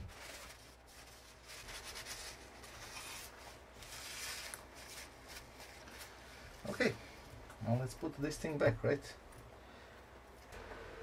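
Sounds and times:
hands rustling paper tissue: 0:00.0 - 0:07.4.

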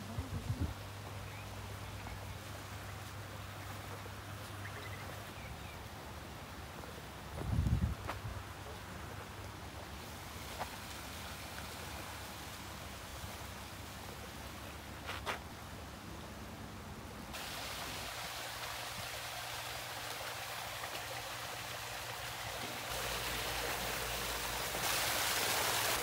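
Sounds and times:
small waterfall pouring into pond: 0:10.5 - 0:13.6, 0:17.3 - 0:26.0
water splashing and trickling: 0:17.3 - 0:26.0.

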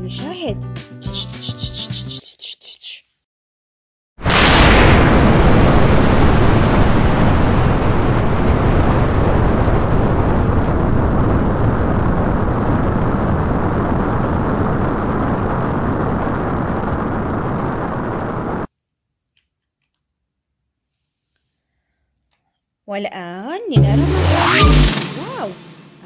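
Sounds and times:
rocket blast rushing rumble: 0:04.2 - 0:18.7, 0:23.8 - 0:26.0.

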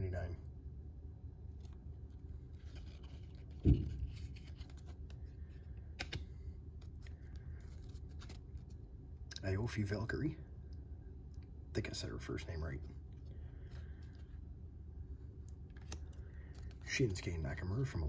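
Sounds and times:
low thump: 0:03.6 - 0:04.1.

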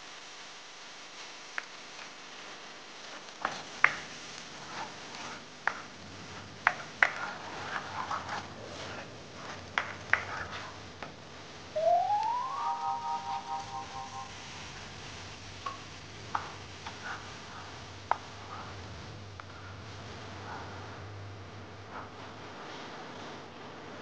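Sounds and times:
pulsing tone: 0:11.8 - 0:14.4.

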